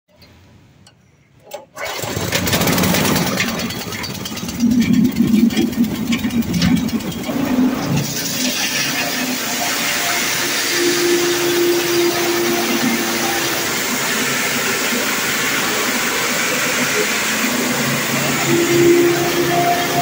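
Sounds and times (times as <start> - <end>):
corn cracker mechanism turning: 1.4 - 20.0
engine starter pull: 1.4 - 20.0
small petrol engine running: 1.5 - 20.0.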